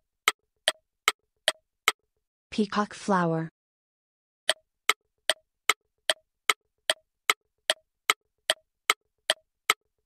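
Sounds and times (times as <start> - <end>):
electronic timer ticks: 0.2 - 2.0, 4.5 - 9.9.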